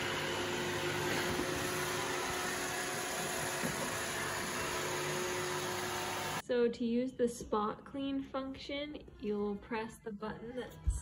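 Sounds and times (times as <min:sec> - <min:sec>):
robot vacuum whirring: 0:00.0 - 0:06.4.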